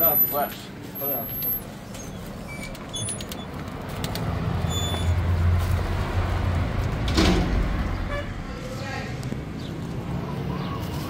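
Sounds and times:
vehicle engine humming: 0.0s - 11.0s.

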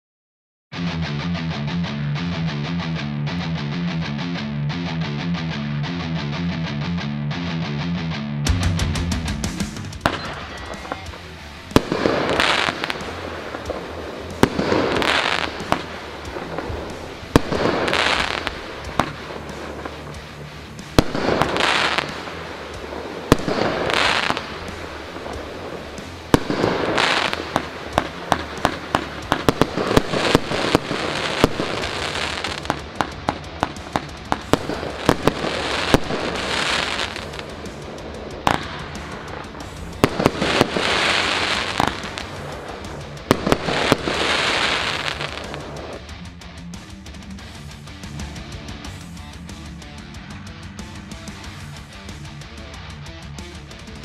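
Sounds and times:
firework hiss: 10.0s - 46.0s
firework shots firing: 10.0s - 46.0s.

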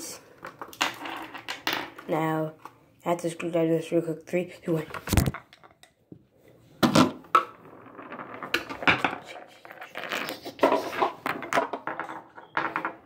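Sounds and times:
clicking and scraping of small objects: 0.3s - 2.8s.

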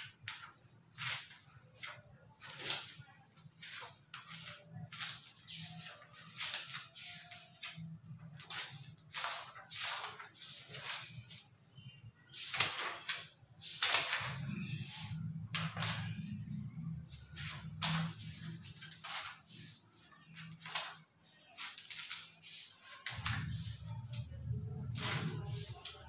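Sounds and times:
paper rustles and scratches: 0.0s - 11.6s, 12.3s - 26.0s.

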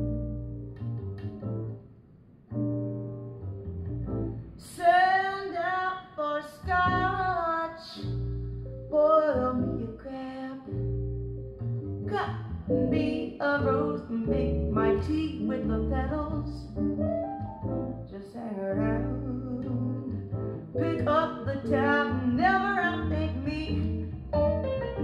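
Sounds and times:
low bass notes: 0.0s - 1.8s, 2.5s - 4.6s, 6.6s - 9.9s, 10.7s - 18.2s, 18.8s - 25.0s
woman singing jazz: 4.6s - 11.0s, 12.1s - 17.0s, 17.9s - 24.6s.

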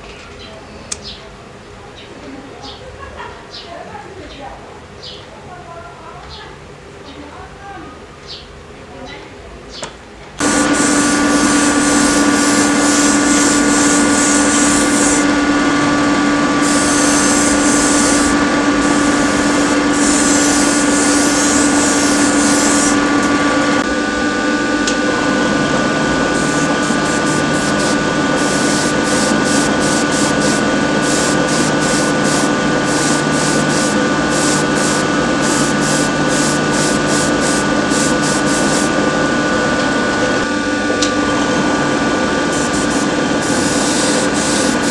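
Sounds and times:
spray paint hissing: 10.4s - 15.4s, 16.5s - 23.1s, 26.3s - 39.0s, 42.4s - 44.9s
motor hum: 10.4s - 44.9s.

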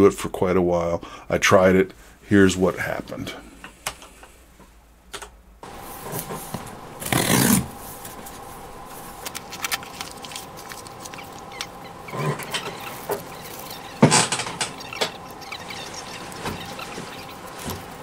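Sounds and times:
faint steady hum: 0.0s - 18.0s
packaging rustling and crackling: 5.6s - 18.0s.

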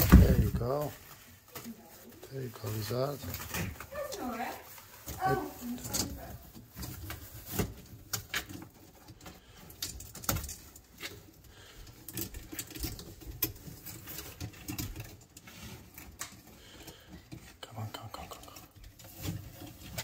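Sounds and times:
lizard clicking and scraping on bark: 0.0s - 20.0s.

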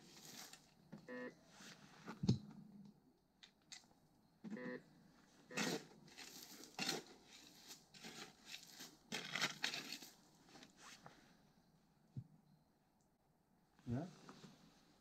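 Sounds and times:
rustling and crunching: 0.0s - 0.9s, 5.2s - 11.1s.

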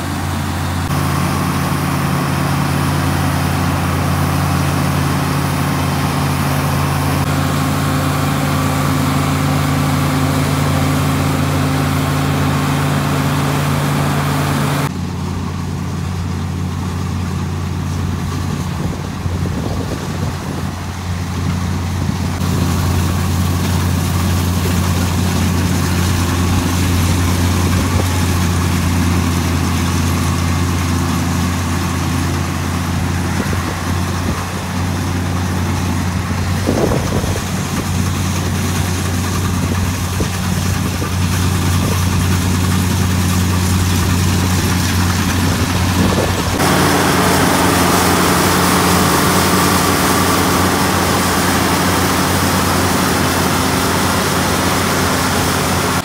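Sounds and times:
combine harvester engine drone: 0.0s - 56.0s
threshing machinery hum: 0.0s - 56.0s.

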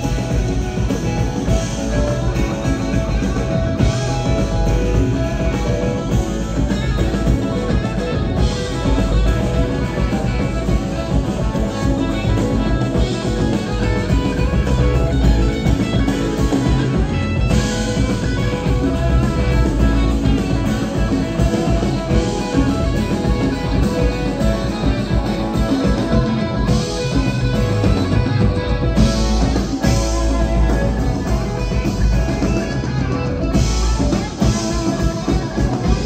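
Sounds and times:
bass guitar: 0.0s - 36.0s
congas: 0.0s - 36.0s
drum kit: 0.0s - 36.0s
electric guitar: 0.0s - 36.0s
keyboard: 0.0s - 36.0s.

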